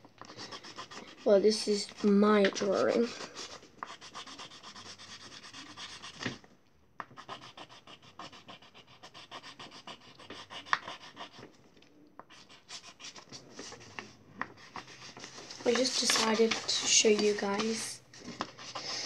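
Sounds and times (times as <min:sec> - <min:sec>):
pen scribbling on paper: 0:00.3 - 0:06.4, 0:07.2 - 0:11.5, 0:12.3 - 0:13.9, 0:14.6 - 0:17.7.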